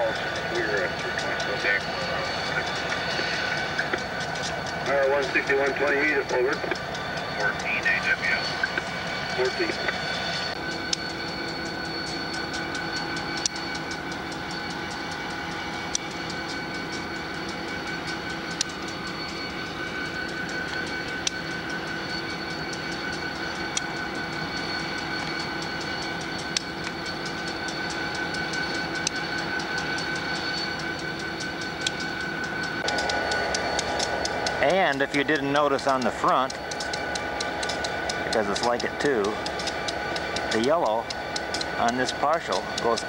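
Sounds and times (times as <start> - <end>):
diesel locomotive engine hum: 0.0 - 43.0
wheels clicking over rail joints: 10.7 - 43.0.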